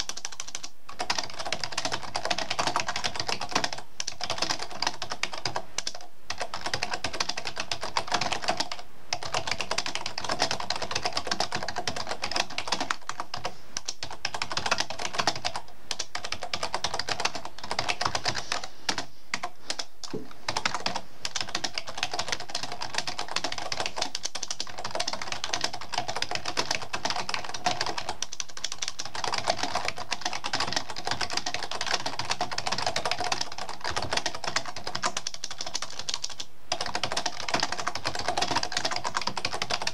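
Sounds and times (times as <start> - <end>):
fast typing on computer keyboard: 0.0 - 39.9.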